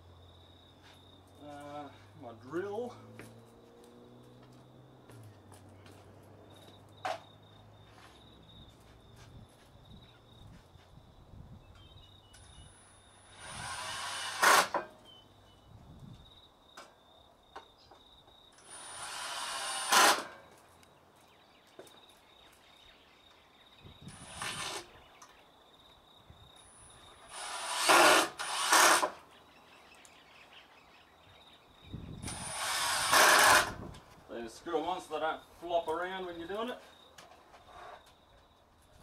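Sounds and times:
cordless drill driving screws: 13.1 - 14.9, 18.6 - 20.4, 24.1 - 24.9, 27.2 - 29.2, 32.2 - 33.8.

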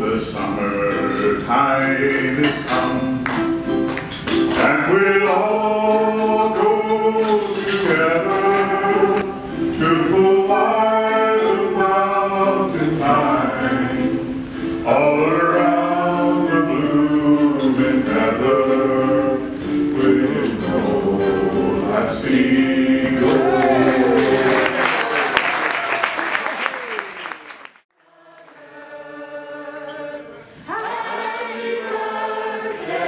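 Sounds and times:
man singing: 0.0 - 3.5, 4.6 - 24.7
strummed ukulele: 0.6 - 24.5.

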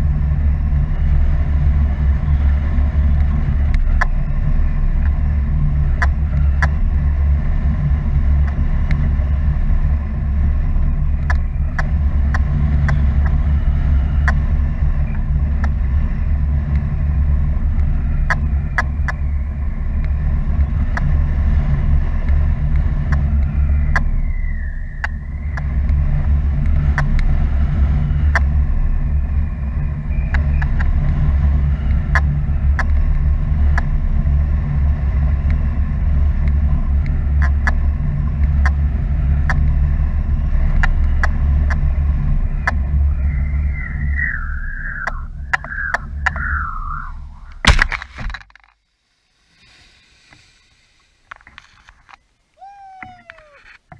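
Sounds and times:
sharp ticks: 10.8 - 13.4, 40.7 - 41.9.

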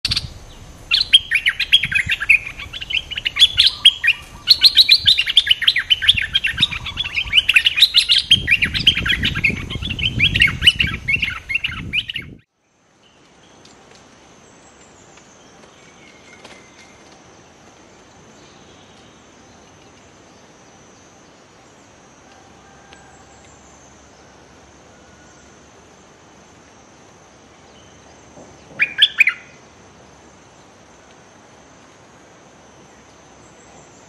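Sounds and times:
low rustling rumble: 0.0 - 7.5, 8.2 - 12.4
bulbuls chattering: 0.0 - 7.7
faint insect hum: 0.0 - 34.0.

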